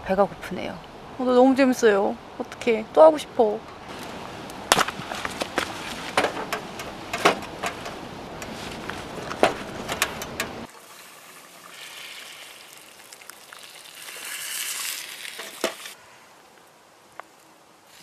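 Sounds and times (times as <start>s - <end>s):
thick soup pouring into cup: 10.8s - 16.0s.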